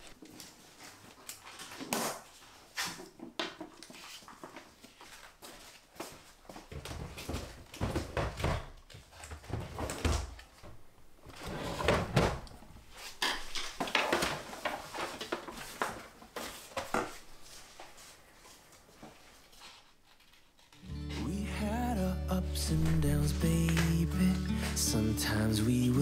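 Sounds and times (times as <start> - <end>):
paper rustling: 12.9 - 21.4, 22.6 - 25.0.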